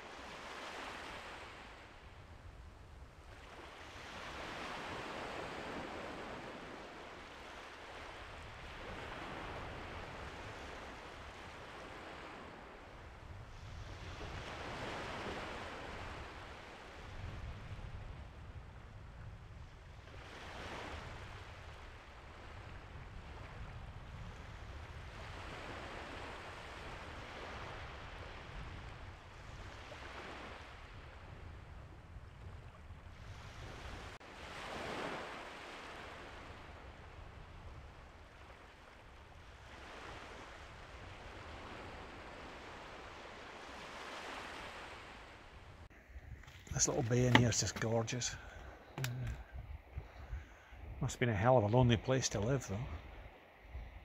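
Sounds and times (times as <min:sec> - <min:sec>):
small waves washing onto beach: 0:00.0 - 0:54.0
low wind rumble: 0:44.7 - 0:51.2.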